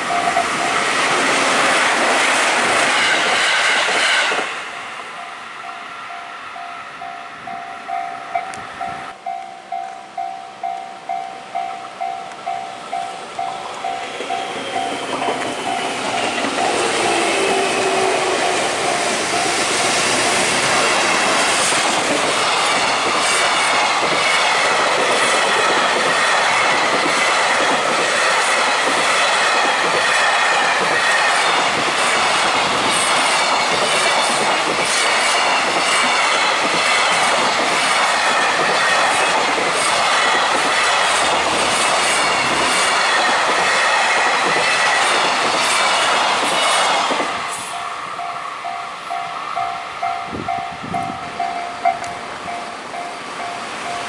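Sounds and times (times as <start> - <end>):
crossing warning bell ringing: 0.0 - 1.0, 4.7 - 20.0, 47.6 - 54.0
train wheels clattering on rails: 0.0 - 4.9, 10.6 - 54.0
high wheel squeal: 13.4 - 21.4.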